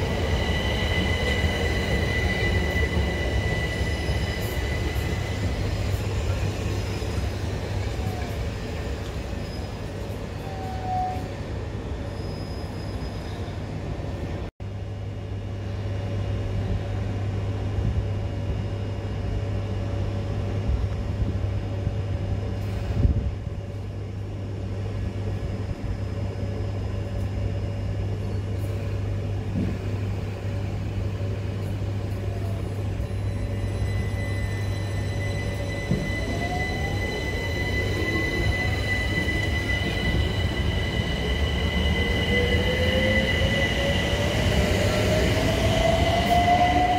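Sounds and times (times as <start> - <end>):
electric train rumble and hum: 0.0 - 46.9
high train whine: 0.0 - 46.9
train clunk: 29.5 - 30.0, 35.6 - 36.5.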